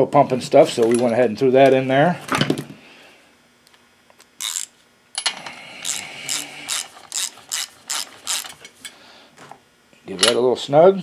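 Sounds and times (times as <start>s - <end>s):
ratchet clicking: 4.4s - 4.7s, 5.8s - 8.7s.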